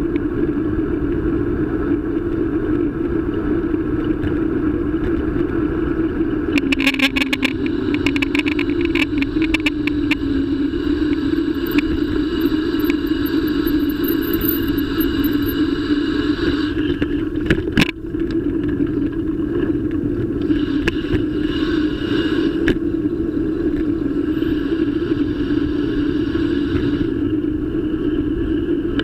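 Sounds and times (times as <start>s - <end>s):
bicycle rolling and rattling: 0.0s - 15.6s, 16.9s - 20.4s
sharp clatter: 11.1s - 15.6s.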